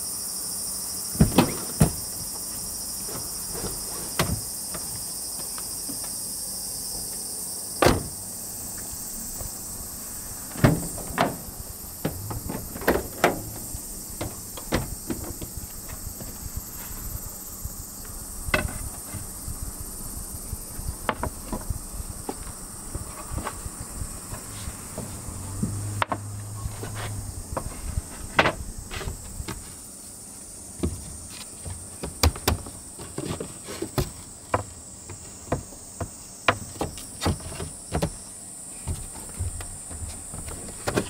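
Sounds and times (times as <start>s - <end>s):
insects chirring: 0.0s - 41.0s
wooden boards knocking: 10.5s - 15.6s, 21.0s - 21.7s.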